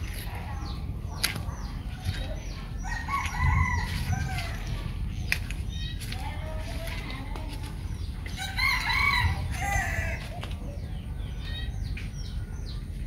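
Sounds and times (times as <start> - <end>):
bird chirps: 0.0 - 13.0
low rumble: 0.0 - 13.0
rooster crowing: 8.4 - 10.3.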